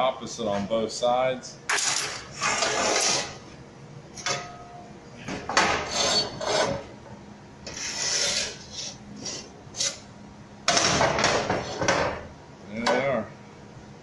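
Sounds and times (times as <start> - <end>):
rough scraping strokes: 7.7 - 10.0.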